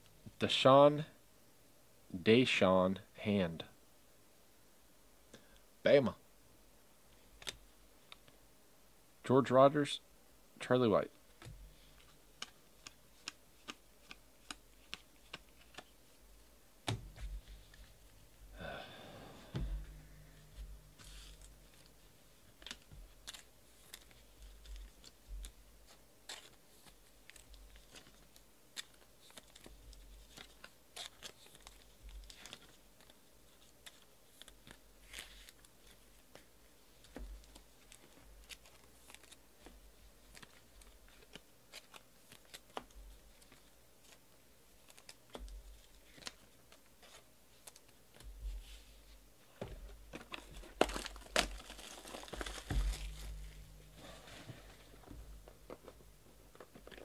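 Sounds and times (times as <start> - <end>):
cards clicking and sliding: 11.9 - 16.0
plastic wrap crinkling: 50.1 - 57.0.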